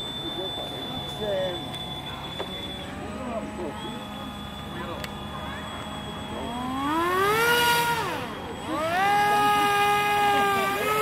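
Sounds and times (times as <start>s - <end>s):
model boat motor whining: 0.0s - 11.0s.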